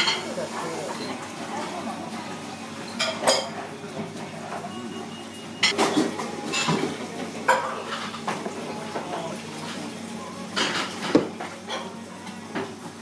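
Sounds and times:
dishes and utensils clinking: 0:02.8 - 0:04.8, 0:05.6 - 0:12.7.

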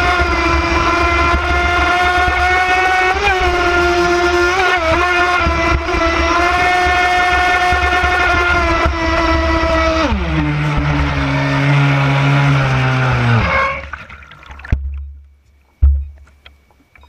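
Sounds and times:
electric boat motor whining: 0:00.0 - 0:14.6
low thumps: 0:04.9 - 0:16.5
water lapping: 0:11.6 - 0:15.0.

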